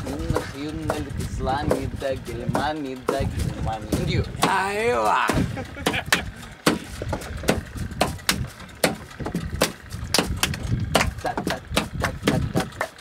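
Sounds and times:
hand claps: 9.6s - 13.0s.

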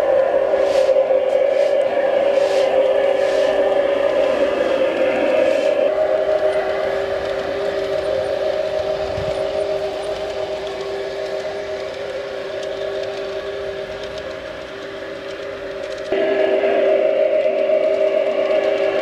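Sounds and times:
model train whine and rattle: 0.0s - 19.0s.

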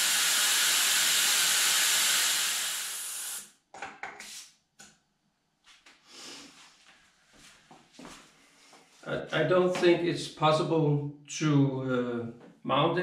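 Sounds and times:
air hissing from tyre valve: 0.0s - 3.5s.

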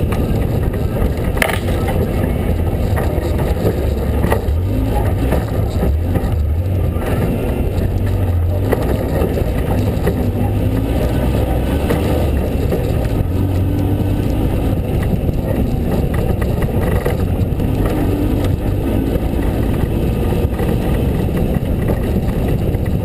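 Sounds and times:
truck engine running: 0.0s - 23.0s.

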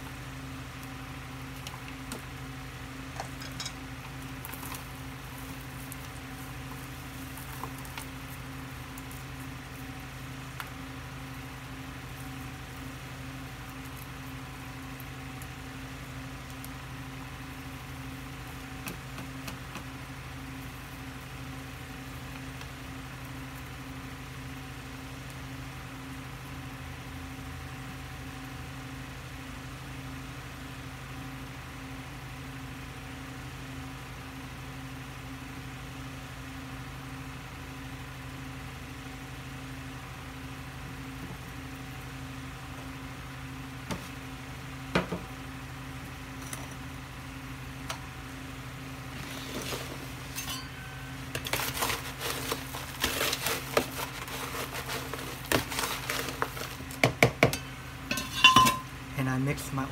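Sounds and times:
pots clattering on a countertop: 49.3s - 50.8s, 51.4s - 58.9s.

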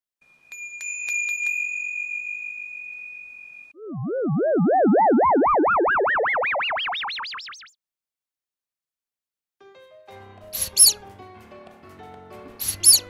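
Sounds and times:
warbling rising electronic tone: 3.8s - 7.8s.

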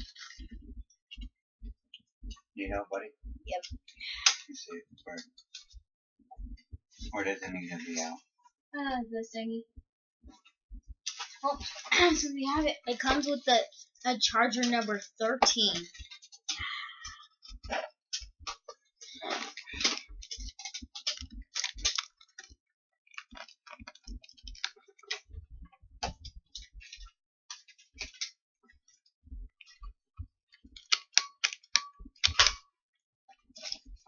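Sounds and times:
plastic and cardboard packaging rustling: 19.2s - 22.6s.

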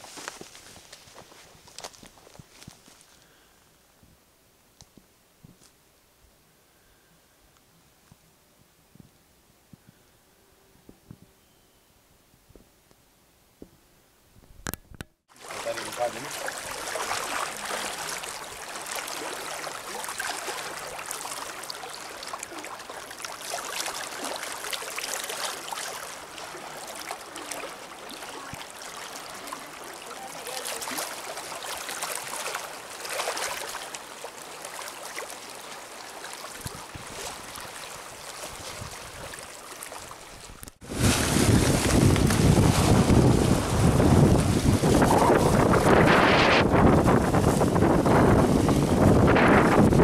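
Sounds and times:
waves lapping on rocky shore: 15.3s - 50.0s
wind buffeting microphone: 40.5s - 50.0s.

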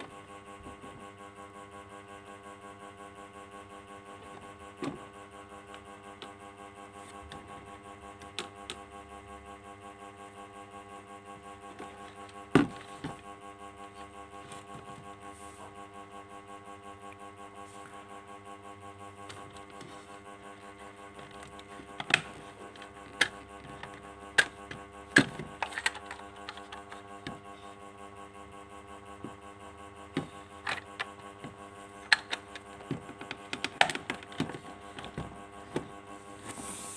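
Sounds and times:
droning hum with overtones: 0.0s - 36.9s
plastic clicks and knocks: 21.2s - 27.5s, 30.2s - 36.0s.

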